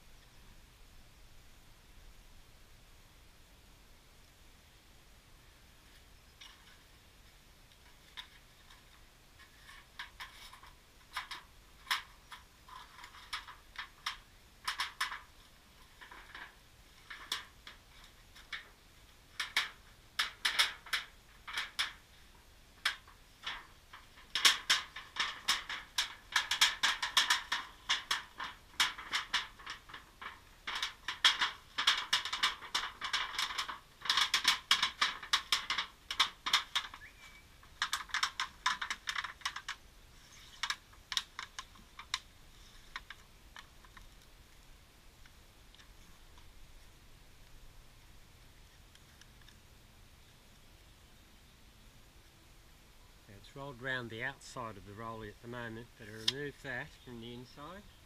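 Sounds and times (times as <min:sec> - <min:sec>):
sheet metal pipe crackling: 0:07.8 - 0:44.6, 0:53.3 - 0:58.0.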